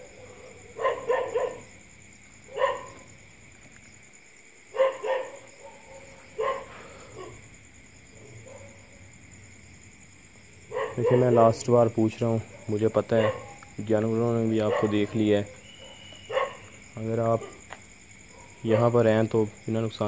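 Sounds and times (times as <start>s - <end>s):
dog barking: 0.0s - 1.7s, 2.5s - 3.1s, 4.7s - 7.4s, 8.1s - 9.1s, 10.7s - 11.6s, 12.4s - 13.6s, 14.6s - 16.7s, 17.3s - 17.6s, 18.3s - 19.0s.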